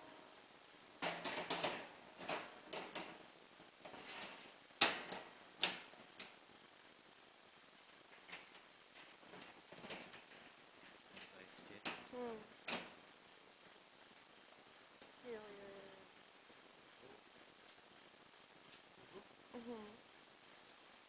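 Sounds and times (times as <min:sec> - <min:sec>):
metal scrape: 0:03.9 - 0:04.6.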